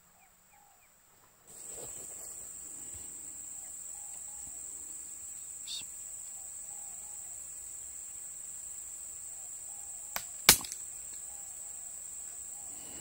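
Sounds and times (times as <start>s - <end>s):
insects droning: 1.4s - 13.0s.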